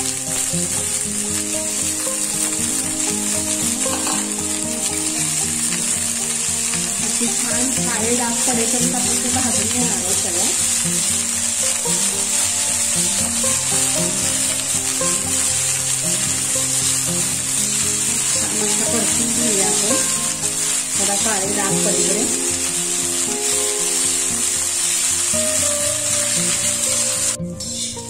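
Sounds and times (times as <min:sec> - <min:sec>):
beans sizzling in hot oil: 0:00.0 - 0:28.0
metal spatula stirring: 0:01.9 - 0:27.1.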